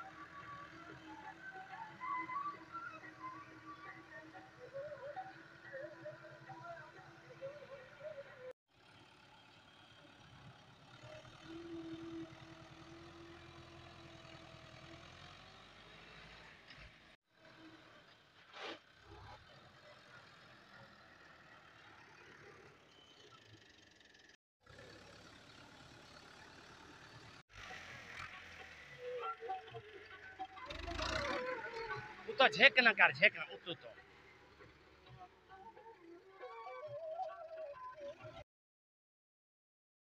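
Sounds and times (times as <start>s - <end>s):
tractor diesel engine running: 8.8s - 17.8s, 20.2s - 36.2s.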